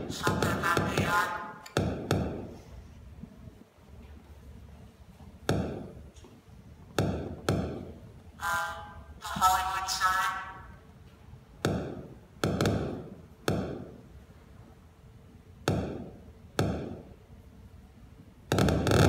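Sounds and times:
sharp pops over loudspeakers: 0.0s - 2.5s, 5.4s - 6.0s, 6.9s - 7.9s, 11.6s - 14.0s, 15.6s - 17.1s, 18.5s - 19.0s.

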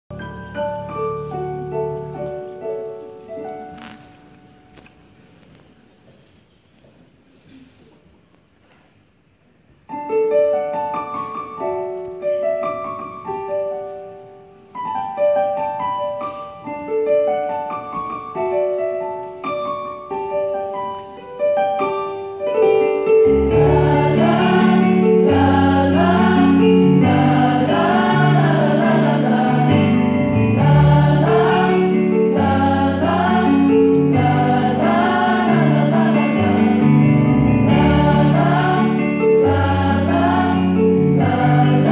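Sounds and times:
slow piano melody: 0.1s - 6.1s, 9.8s - 41.9s
choir singing a hymn: 23.2s - 41.9s.

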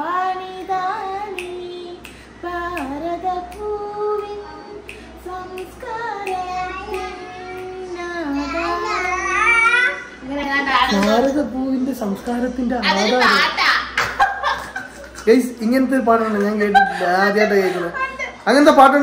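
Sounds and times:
woman singing unaccompanied: 0.0s - 9.4s, 10.1s - 13.5s.

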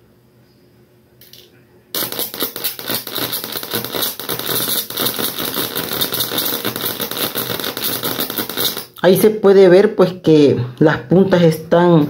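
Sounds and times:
electric arc crackling buzz: 1.9s - 9.2s.

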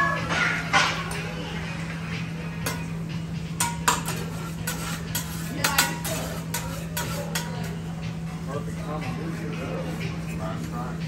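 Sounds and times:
metal spatulas clinking on griddle: 2.6s - 7.9s.

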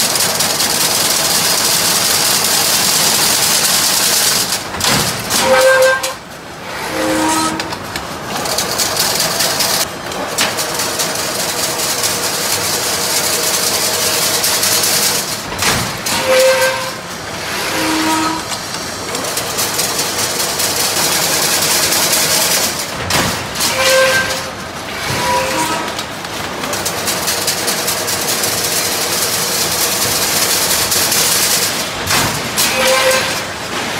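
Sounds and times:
weaving machine hiss and clatter: 0.0s - 6.8s, 7.6s - 33.9s.

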